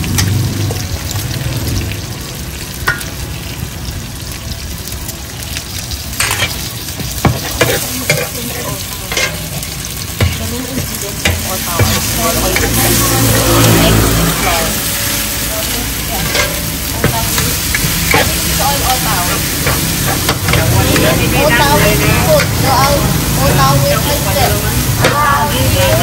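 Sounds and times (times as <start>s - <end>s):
food sizzling in pan: 0.0s - 26.0s
metal spatula scraping pan: 6.2s - 23.6s.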